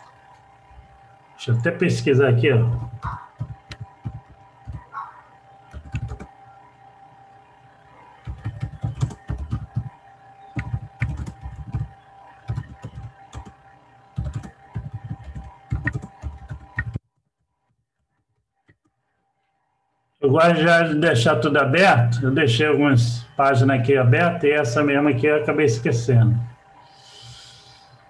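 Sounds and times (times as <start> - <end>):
faint steady hum: 0.0 - 17.0, 18.8 - 28.0
typing on computer keyboard: 2.9 - 4.9, 5.7 - 6.3, 8.2 - 13.6, 14.2 - 17.4.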